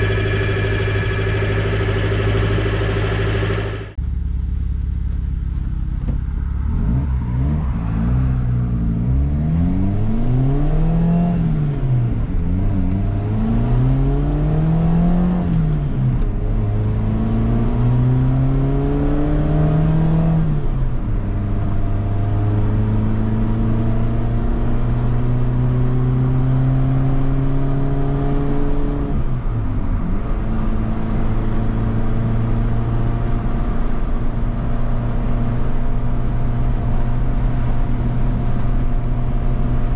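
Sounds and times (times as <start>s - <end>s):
car engine accelerating through gears: 6.0s - 20.7s, 21.3s - 29.3s.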